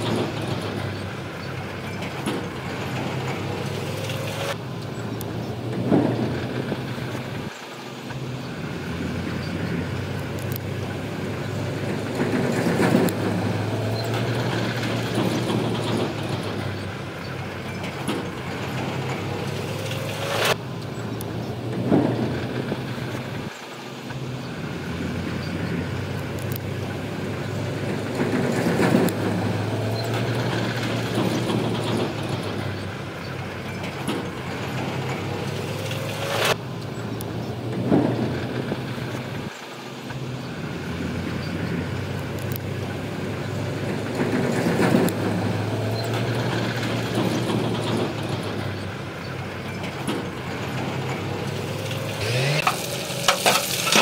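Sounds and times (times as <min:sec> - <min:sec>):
bulldozer diesel engine running: 0:00.0 - 0:54.0
rough crackling: 0:40.6 - 0:54.0
metal clanks: 0:49.7 - 0:54.0.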